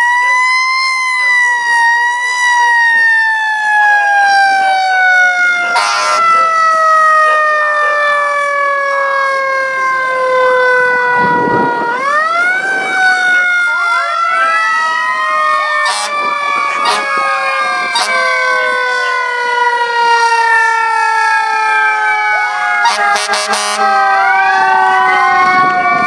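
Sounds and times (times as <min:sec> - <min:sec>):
mechanical siren wailing: 0:00.0 - 0:26.0
other sirens winding up: 0:00.0 - 0:26.0
short horn blast: 0:15.8 - 0:16.2, 0:17.9 - 0:18.5, 0:22.8 - 0:24.1.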